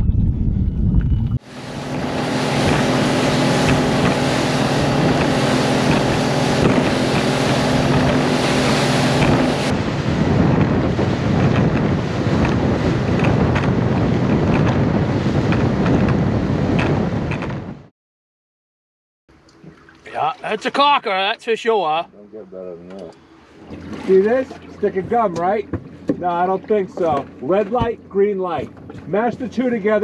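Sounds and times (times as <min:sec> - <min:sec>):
wind buffeting microphone: 0:00.0 - 0:17.9
motorboat engine drone: 0:00.1 - 0:17.9, 0:19.3 - 0:30.0
water rushing past hull: 0:01.4 - 0:17.4, 0:19.4 - 0:22.0, 0:23.3 - 0:30.0.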